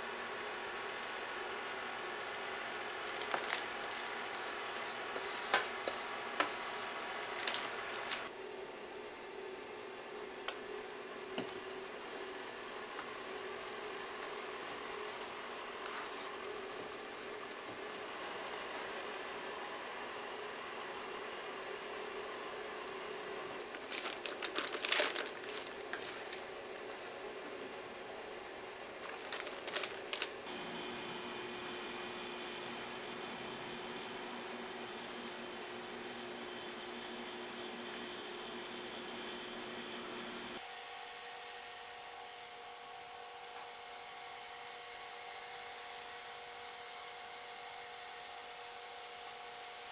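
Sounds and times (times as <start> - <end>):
low room hum: 0.0 - 49.9
plastic bag crinkling: 3.0 - 8.3, 23.6 - 26.5, 29.0 - 30.5.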